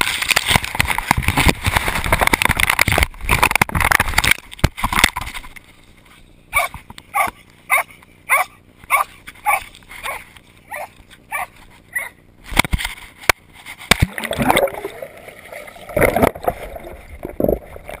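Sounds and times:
water splashing and gurgling: 0.0 - 5.6, 13.6 - 18.0
dog barking: 6.6 - 12.2.

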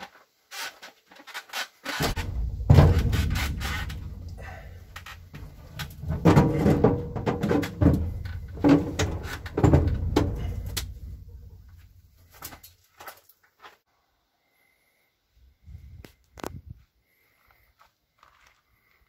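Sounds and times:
low rumble: 2.0 - 12.2
heavy battery clunking on metal: 2.0 - 12.6.

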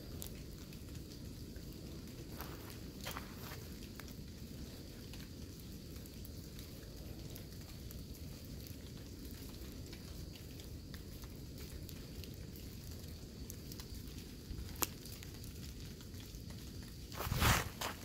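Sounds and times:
light rain pattering: 0.0 - 18.0.

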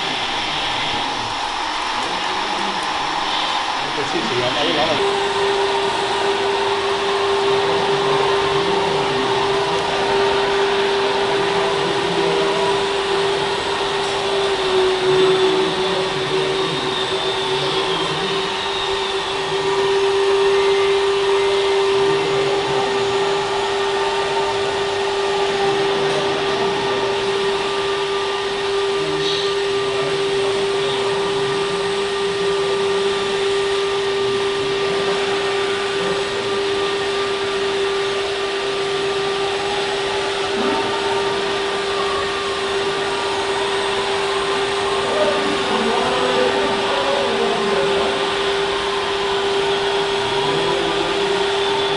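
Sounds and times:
hydraulic pump whining: 0.0 - 51.9.

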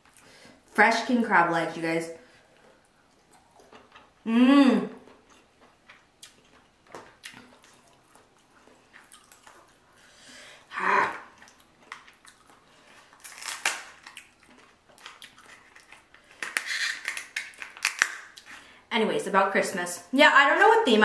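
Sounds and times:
person chewing: 2.4 - 10.1, 11.1 - 18.7.

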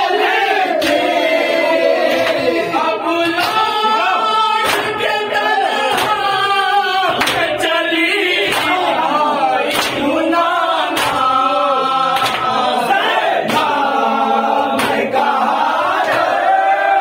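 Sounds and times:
men chanting together: 0.0 - 17.0
hands slapping bare chests: 4.6 - 5.0, 10.9 - 11.3, 12.1 - 12.5, 14.8 - 15.1.

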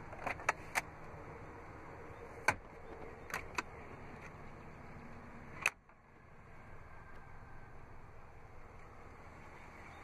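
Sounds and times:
glove box clicks and knocks: 0.0 - 0.9, 2.4 - 4.4
steady low hum: 0.0 - 10.0.

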